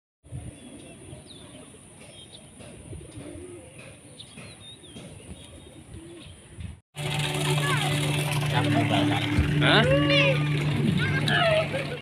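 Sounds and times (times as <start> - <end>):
small birds chirping: 0.3 - 6.8
pigeons cooing: 0.4 - 6.6.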